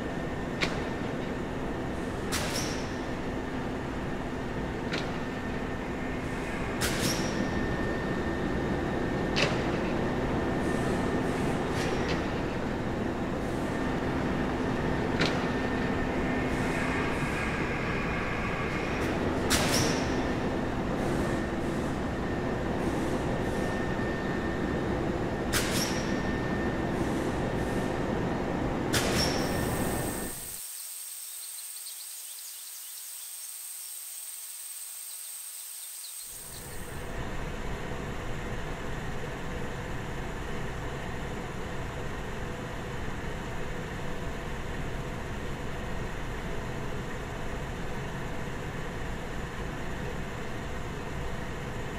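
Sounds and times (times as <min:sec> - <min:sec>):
high hiss with whine: 0:29.4 - 0:37.1.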